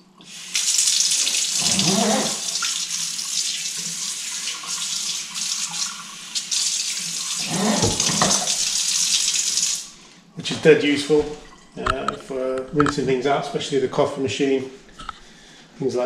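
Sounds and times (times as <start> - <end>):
tap water running into sink: 0.2 - 9.9.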